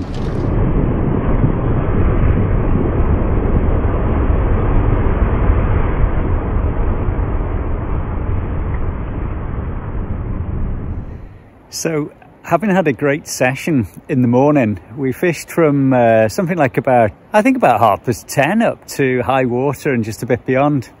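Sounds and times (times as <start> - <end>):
waves washing on shingle beach: 0.0 - 0.6.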